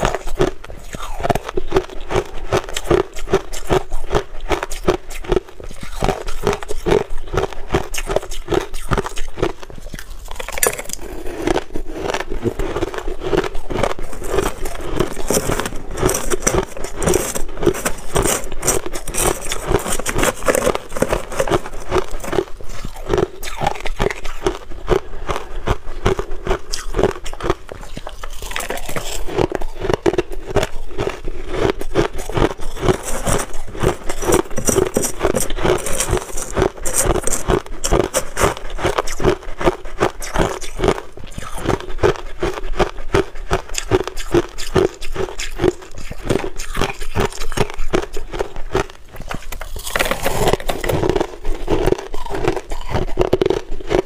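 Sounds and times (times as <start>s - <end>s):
chewing crushed ice: 0.0s - 54.0s
metal spoon scraping through ice: 8.9s - 12.2s, 13.3s - 24.3s, 26.7s - 41.7s, 43.7s - 54.0s.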